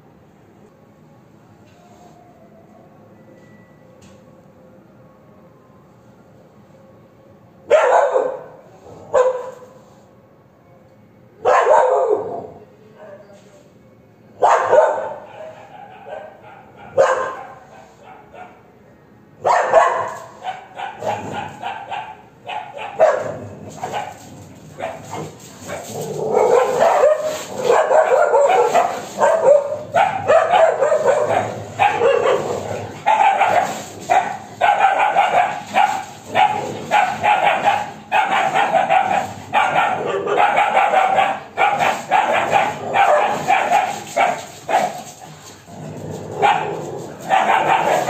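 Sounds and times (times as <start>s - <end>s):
dogs barking and yelping: 7.7s - 9.8s, 11.4s - 12.5s, 14.4s - 18.7s, 19.4s - 48.0s.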